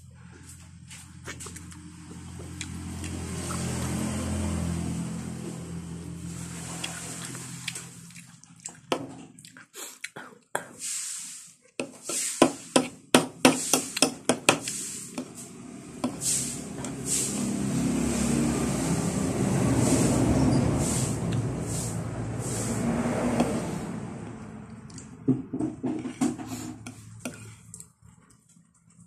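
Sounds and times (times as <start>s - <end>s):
wet chewing and smacking: 1.2s - 4.0s, 6.8s - 10.3s.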